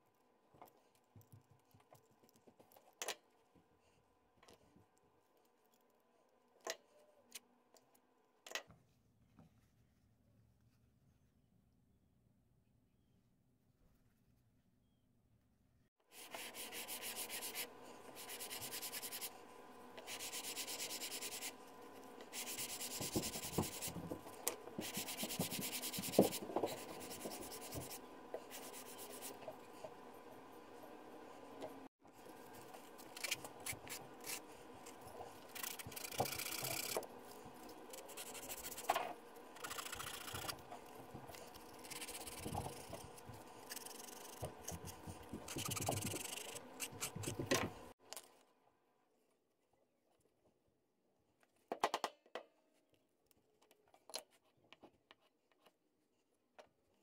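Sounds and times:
leather rasping on sandpaper: 16.1 - 19.3, 37.7 - 38.9, 41.4 - 44.5.

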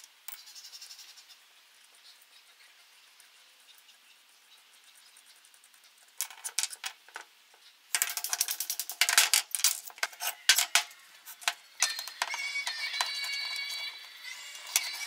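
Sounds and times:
lamp parts clattering: 8.0 - 13.9
music: 10.2 - 15.0.

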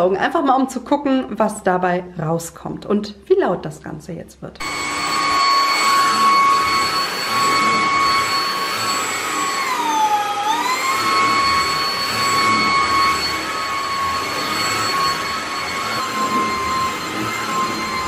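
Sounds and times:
vacuum cleaner motor whine: 4.6 - 18.0.

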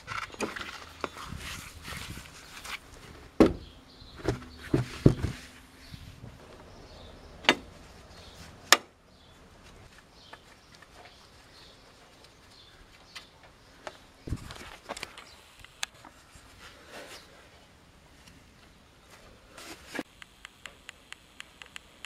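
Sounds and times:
sharp metallic clicks: 20.1 - 22.0.

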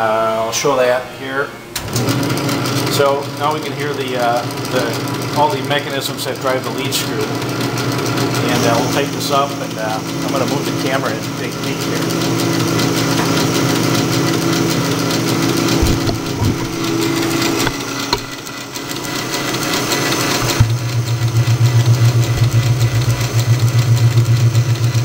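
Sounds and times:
lathe whirring with gear hum: 7.2 - 25.0
lathe tool cutting steel: 12.3 - 24.1.

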